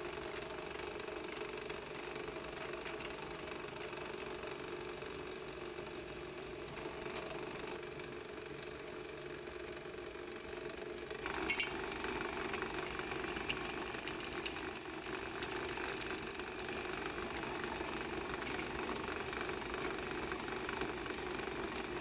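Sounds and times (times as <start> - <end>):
drill press motor running: 8.7 - 22.0
light metal clinks: 13.5 - 14.8.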